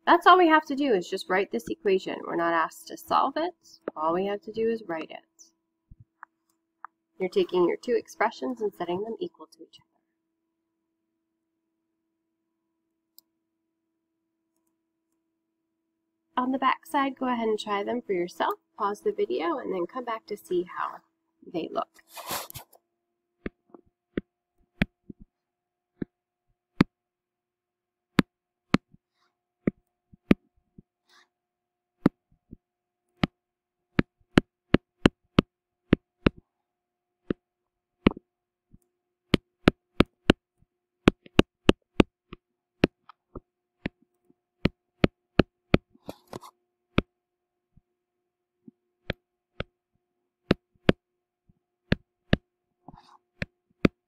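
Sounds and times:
stylus tapping tablet screen: 0:23.4 - 0:25.3, 0:34.0 - 0:36.4, 0:41.1 - 0:44.0.

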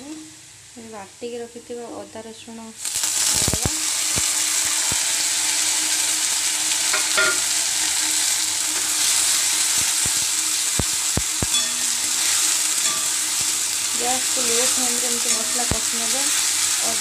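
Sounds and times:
onions sizzling in hot oil: 0:02.5 - 0:17.0
spatula knocking against pan: 0:06.9 - 0:07.5.

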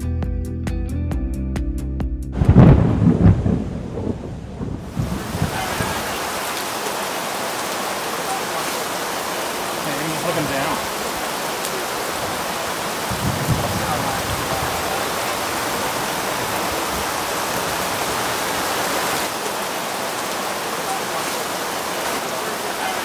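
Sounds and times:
low rumble: 0:02.4 - 0:05.6
heavy rain on wet grass: 0:02.4 - 0:23.0.

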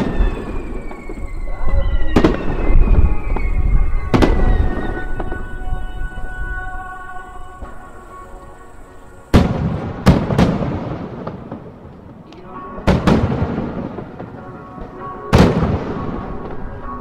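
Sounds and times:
firework booms: 0:00.0 - 0:06.7, 0:09.3 - 0:17.0
echoing rumble: 0:00.0 - 0:17.0.

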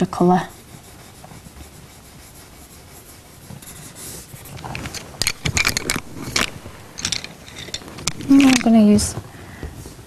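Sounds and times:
pencil rubbing on paper: 0:00.0 - 0:05.0
pencils clicking and rattling: 0:03.7 - 0:09.2.

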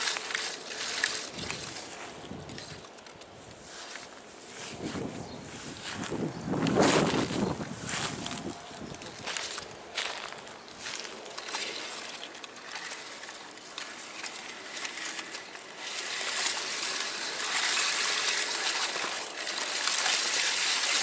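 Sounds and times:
tall grass rustling: 0:00.0 - 0:21.0.

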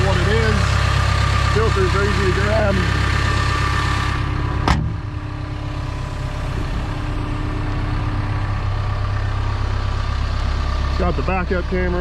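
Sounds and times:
excavator diesel engine idling: 0:00.0 - 0:12.0.

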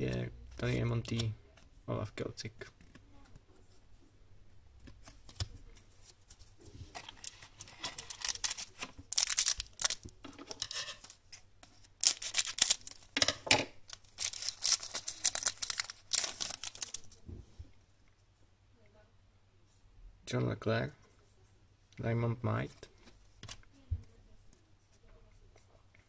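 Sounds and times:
card pack wrapper tearing and crinkling: 0:07.0 - 0:13.1, 0:13.8 - 0:17.2.

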